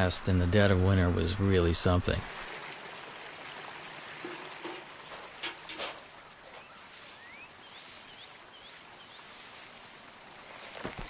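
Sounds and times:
running water rushing: 0.0 - 11.0
high upward-sweeping bird chirps: 6.6 - 9.2.

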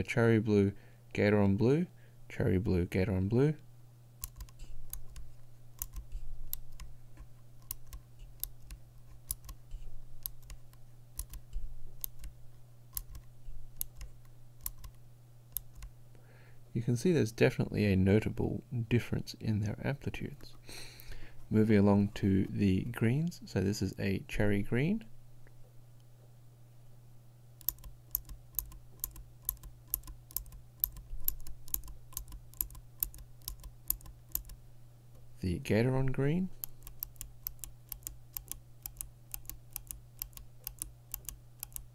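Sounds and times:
mechanical keyboard switch clicks: 4.2 - 6.9, 7.6 - 9.6, 11.2 - 11.4, 13.8 - 15.0, 15.6 - 15.9, 27.6 - 34.6, 36.6 - 41.9.

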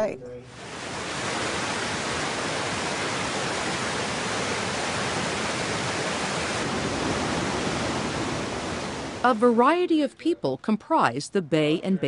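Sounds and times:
river water rushing over rocks: 0.5 - 9.3.

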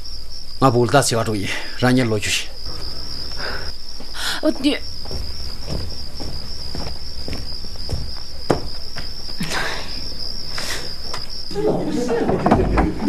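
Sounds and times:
crickets trilling: 0.0 - 13.0
soft knocks: 4.6 - 9.2.

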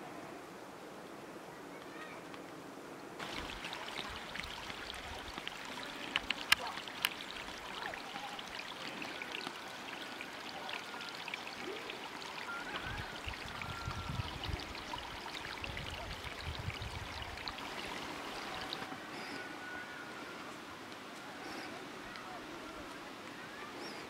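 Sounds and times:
flowing water rushing: 3.2 - 24.0
small ticks: 4.0 - 12.0.

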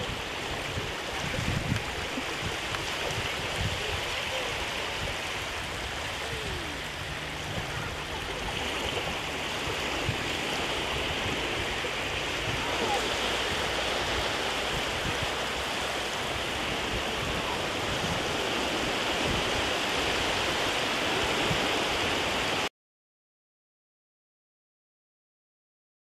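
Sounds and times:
sea water washing at shoreline: 0.0 - 22.7.

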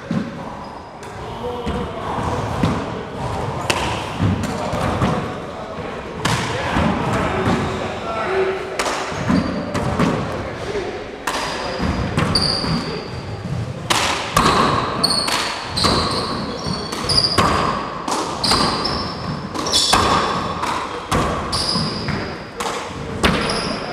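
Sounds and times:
sneakers squeaking on floor: 9.2 - 10.2, 11.5 - 13.8, 14.4 - 22.6, 23.2 - 23.9.

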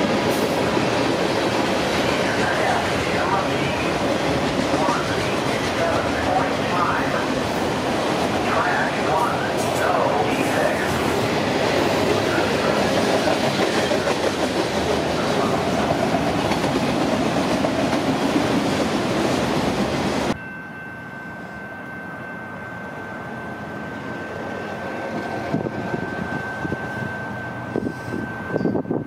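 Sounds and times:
freight train wheels on rail: 0.0 - 20.4, 21.3 - 29.0
high-pitched tone: 20.4 - 29.0.

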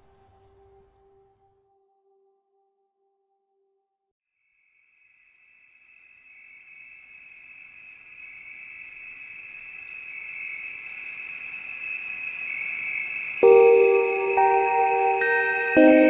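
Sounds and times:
high-pitched insect-like trill: 11.6 - 16.0.

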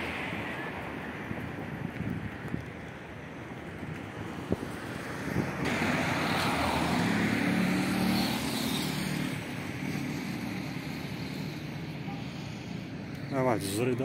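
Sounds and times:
small motorcycle passing: 4.4 - 13.4.

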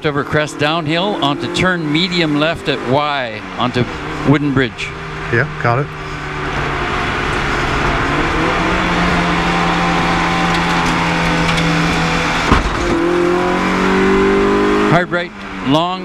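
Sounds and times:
car engine accelerating: 0.0 - 16.0
brief thump: 12.5 - 13.0.

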